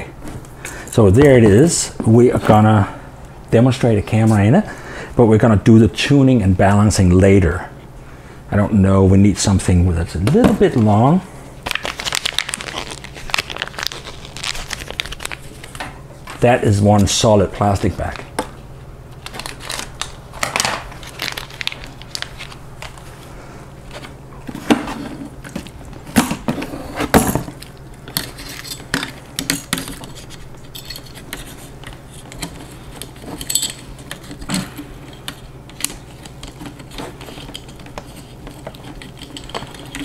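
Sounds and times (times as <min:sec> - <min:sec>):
steady low hum: 0:00.0 - 0:40.0
hard parts clicking and clattering: 0:27.1 - 0:40.0.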